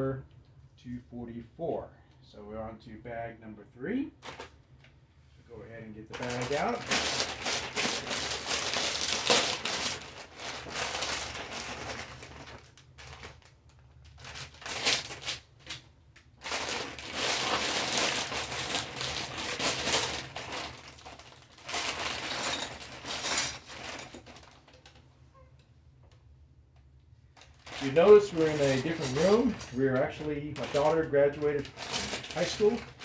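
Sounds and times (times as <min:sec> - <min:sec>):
plastic pieces rattling: 0:06.1 - 0:15.8, 0:16.4 - 0:25.0, 0:27.4 - 0:33.0
plastic bags crinkling: 0:06.1 - 0:25.1, 0:27.3 - 0:33.0.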